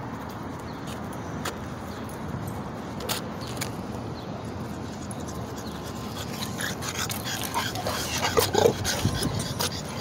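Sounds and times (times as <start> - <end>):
dog panting: 5.5 - 10.0.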